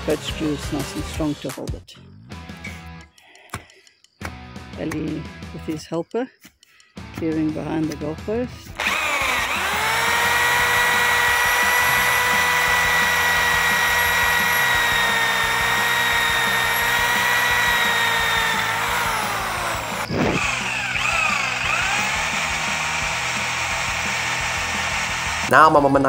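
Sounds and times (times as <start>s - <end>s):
electric drill whining: 8.8s - 25.8s.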